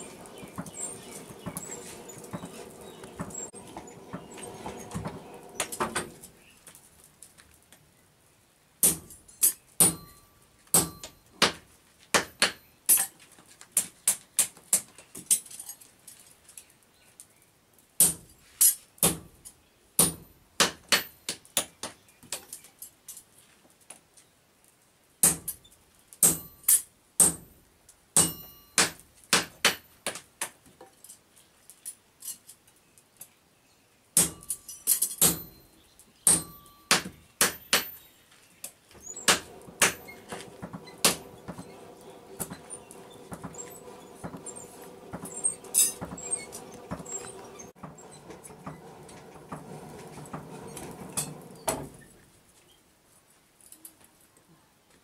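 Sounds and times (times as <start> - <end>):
hammer striking hot metal on anvil: 8.8 - 9.2, 9.8 - 11.6, 20.0 - 21.2, 26.2 - 27.5, 28.2 - 29.8, 34.2 - 35.6, 36.3 - 38.0, 39.2 - 47.4
metallic ring: 9.3 - 11.3, 28.2 - 28.8, 34.3 - 37.0, 39.1 - 47.8.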